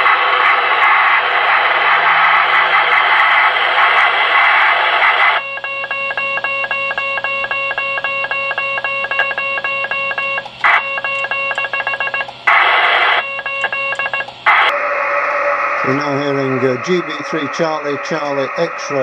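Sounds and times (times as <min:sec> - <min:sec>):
keyed radio tone dots: 0:00.0 - 0:19.0
rough broad radio hiss: 0:15.8 - 0:19.0.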